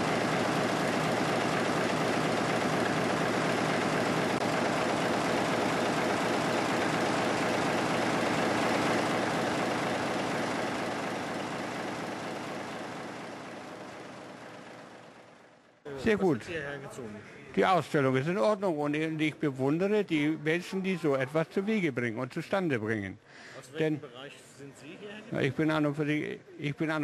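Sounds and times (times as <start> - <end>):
engine mechanical clatter: 0.0 - 15.8.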